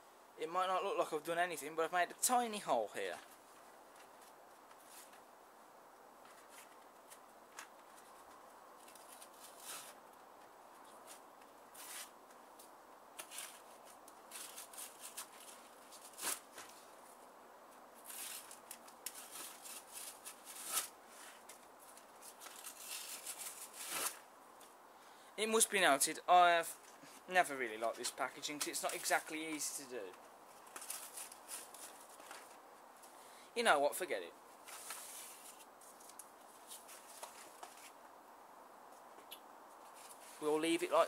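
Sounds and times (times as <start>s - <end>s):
cardboard tearing and crinkling: 13.2s - 16.8s, 18.0s - 21.0s, 22.2s - 24.2s, 30.6s - 32.5s.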